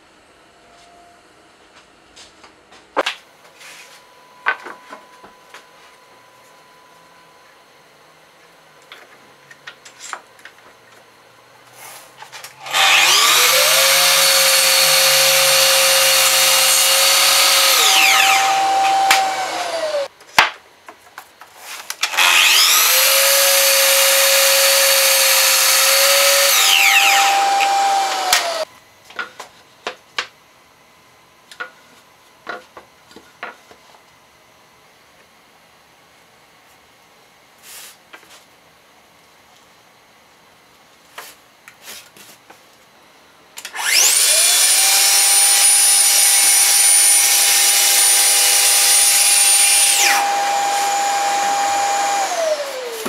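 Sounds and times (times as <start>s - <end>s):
miter saw cutting wood: 12.6s - 20.1s, 22.0s - 28.7s, 43.7s - 53.0s.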